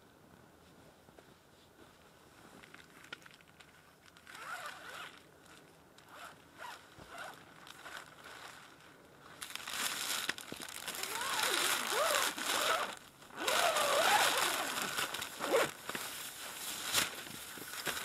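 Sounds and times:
zipper being pulled: 4.3 - 5.2, 6.1 - 8.1, 10.9 - 15.8.

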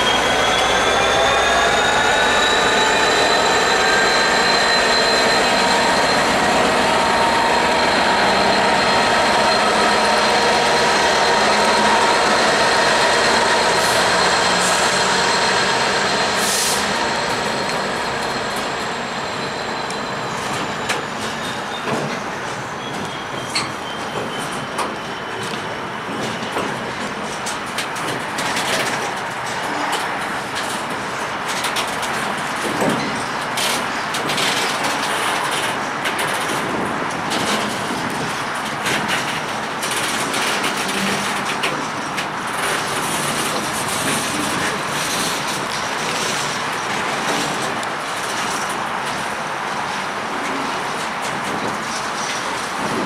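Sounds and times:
high steady whine: 0.0 - 20.8
diesel locomotive engine: 0.0 - 53.0
train wheels clicking over rail joints: 1.4 - 53.0.

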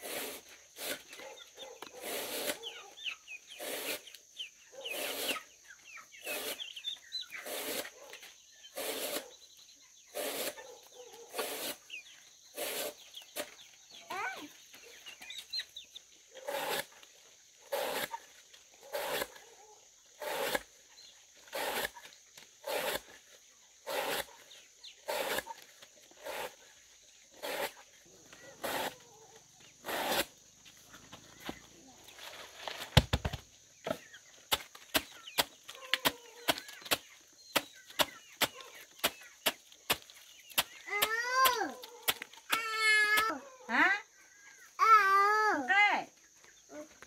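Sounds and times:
chick peeping: 1.0 - 17.3, 33.9 - 42.5.

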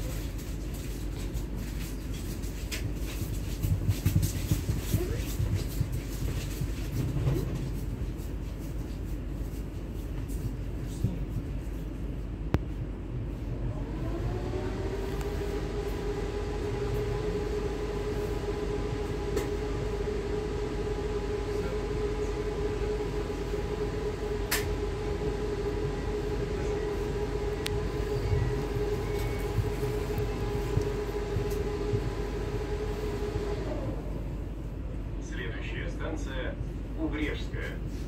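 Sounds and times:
train wheels rumbling on rail: 0.0 - 38.0
electrical whine: 13.4 - 35.5.

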